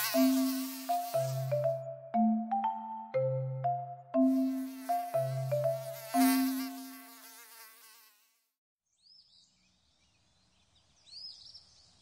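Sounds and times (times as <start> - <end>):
mosquito buzzing: 0.0 - 2.4, 4.2 - 8.6.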